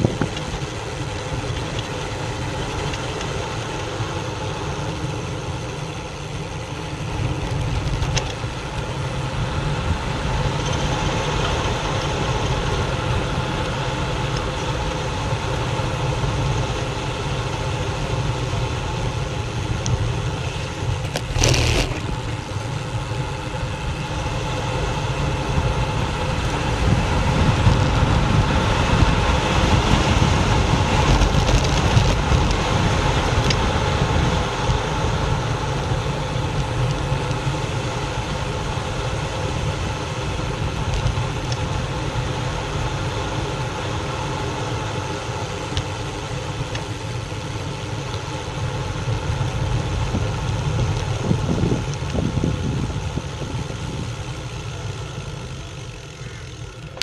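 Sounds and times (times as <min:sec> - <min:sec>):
wind buffeting microphone: 0:00.0 - 0:03.1, 0:19.7 - 0:37.2, 0:49.3 - 0:54.3
road rumble: 0:00.0 - 0:57.0.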